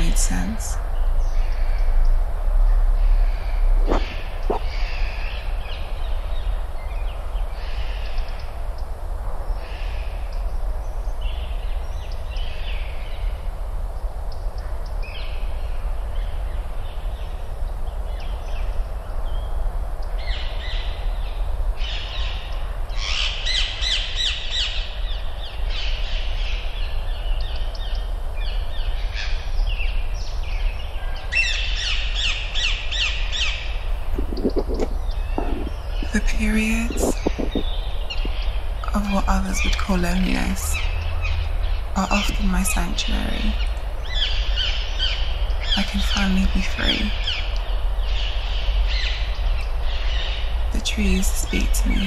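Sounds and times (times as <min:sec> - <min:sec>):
steady low rumble: 0:00.0 - 0:07.8, 0:33.7 - 0:52.0
birds calling: 0:02.8 - 0:06.1, 0:31.3 - 0:52.0
harsh bird chattering: 0:03.9 - 0:04.9, 0:34.0 - 0:38.4.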